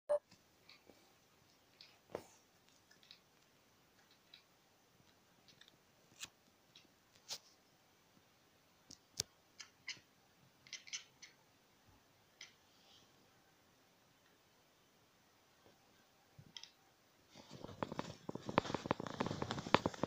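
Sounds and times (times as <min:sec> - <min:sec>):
cat chattering: 0:09.6 - 0:11.4.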